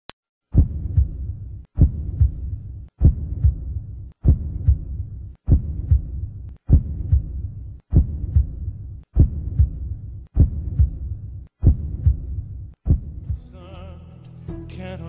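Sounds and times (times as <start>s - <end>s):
heartbeat double thump: 0.6s - 13.5s
low hum: 0.6s - 13.6s.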